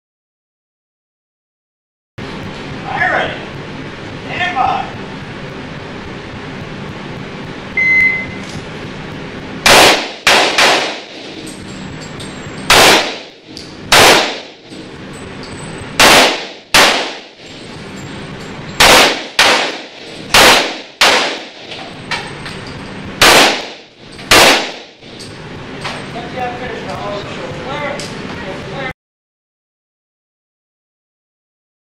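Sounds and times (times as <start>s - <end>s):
shot timer beep: 7.8s - 8.4s
pistol shots echoing: 9.6s - 11.4s, 12.7s - 14.6s, 16.0s - 17.4s, 18.8s - 21.7s, 23.2s - 25.0s.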